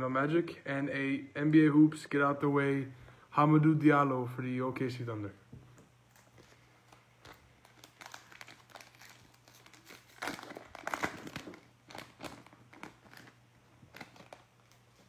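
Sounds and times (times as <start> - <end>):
foil wrapper crinkling and tearing: 6.1 - 15.0.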